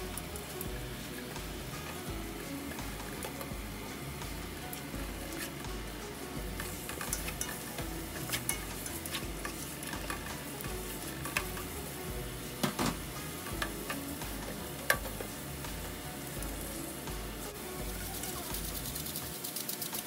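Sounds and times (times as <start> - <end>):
food sizzling in a pot: 0.0 - 20.0.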